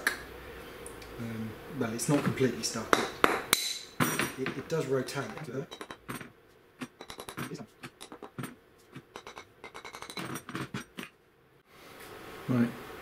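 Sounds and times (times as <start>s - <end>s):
rapid metallic clicks and clinks: 5.2s - 11.1s.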